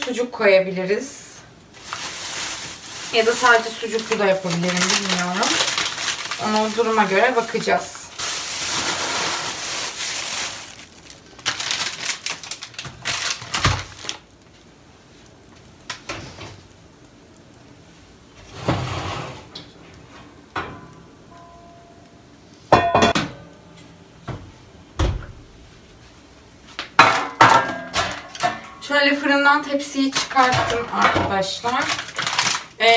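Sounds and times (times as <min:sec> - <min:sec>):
plastic packaging rustling: 0:01.6 - 0:15.4, 0:29.2 - 0:32.9
metal baking tray clattering: 0:27.0 - 0:28.9, 0:29.6 - 0:32.7.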